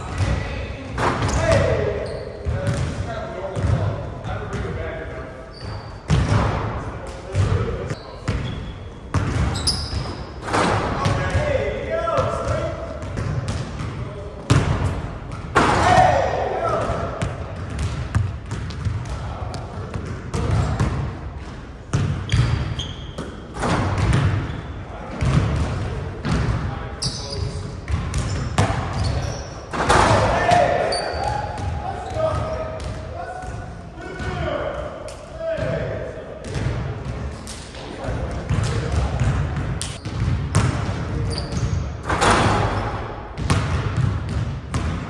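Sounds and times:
sneakers squeaking: 0:00.0 - 0:04.7, 0:05.4 - 0:11.5, 0:12.1 - 0:34.5, 0:36.4 - 0:45.0
shoe squeaks: 0:01.3 - 0:02.5, 0:05.5 - 0:06.1, 0:07.9 - 0:10.4, 0:22.2 - 0:23.4, 0:27.0 - 0:27.6, 0:28.2 - 0:29.7, 0:30.8 - 0:32.7, 0:41.3 - 0:41.9
basketball bouncing on hardwood floor: 0:09.1 - 0:10.1, 0:17.2 - 0:21.0, 0:21.9 - 0:24.5, 0:38.5 - 0:41.7, 0:43.4 - 0:45.0.

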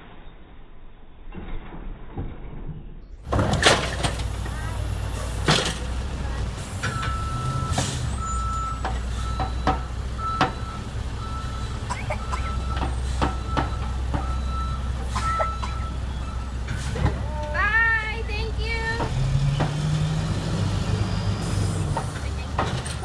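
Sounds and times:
truck engine running: 0:03.2 - 0:23.0
truck backup alarm beeping: 0:06.5 - 0:17.1, 0:17.9 - 0:23.0.

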